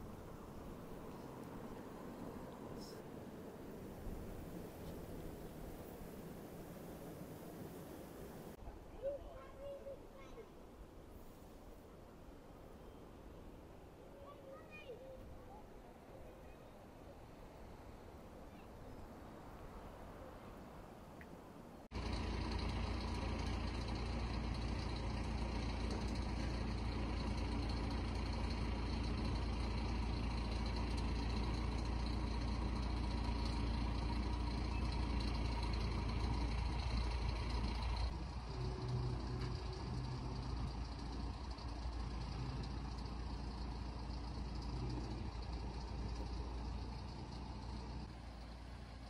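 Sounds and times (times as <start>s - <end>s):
tractor engine running: 0.0s - 8.6s, 21.9s - 49.0s.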